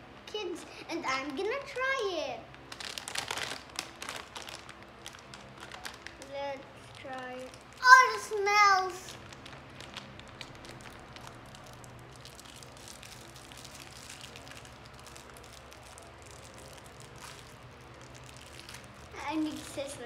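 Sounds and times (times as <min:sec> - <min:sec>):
steady low hum: 0:00.0 - 0:20.0
plastic wrapper crinkling: 0:01.0 - 0:20.0.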